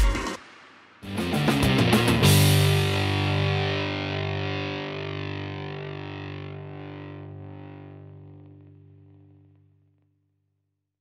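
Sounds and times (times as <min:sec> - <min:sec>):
distorted electric guitar chord: 0:01.0 - 0:09.8.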